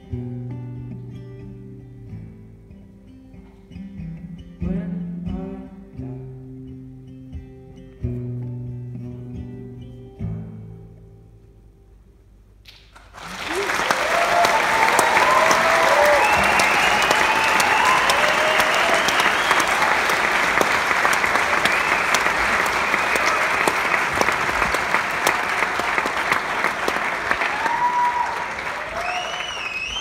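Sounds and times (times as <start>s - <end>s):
audience applauding: 12.7s - 30.0s
cheers: 13.1s - 30.0s
whistles: 13.4s - 23.8s, 27.5s - 30.0s.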